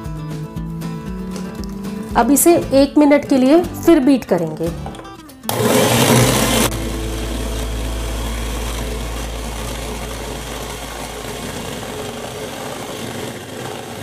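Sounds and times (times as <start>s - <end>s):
electric hand mixer whisking: 5.5s - 14.0s.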